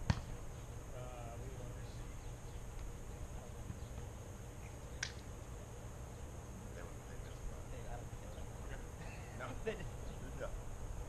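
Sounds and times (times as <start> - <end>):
volleyball being struck: 0.0 - 0.4
low outdoor rumble: 0.0 - 11.0.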